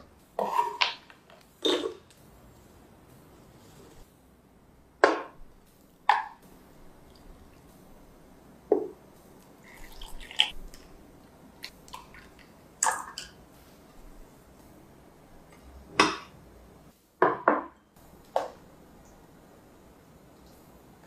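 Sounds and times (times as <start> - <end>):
wet drips: 9.4 - 10.9, 11.6 - 13.3
milk pouring splash: 9.6 - 10.9.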